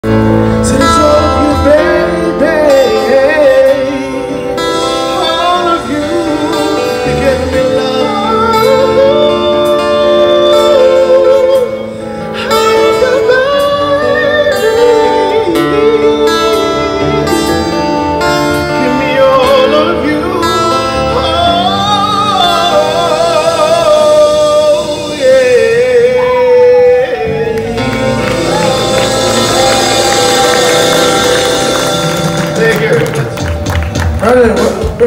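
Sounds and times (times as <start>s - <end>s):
man singing into microphone: 0.0s - 27.6s
acoustic guitar: 0.0s - 35.0s.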